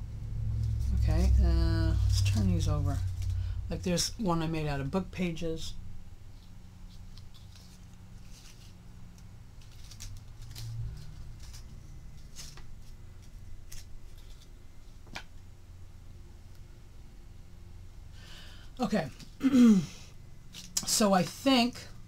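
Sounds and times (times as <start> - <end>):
low steady hum: 0.0 - 22.0
paper flowers rustling and clicking: 6.3 - 15.3, 20.5 - 21.8.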